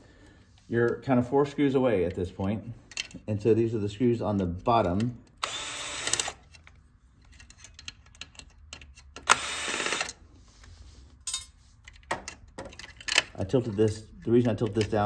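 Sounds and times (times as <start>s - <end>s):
cordless drill driver running: 5.4s - 6.4s, 9.2s - 10.2s.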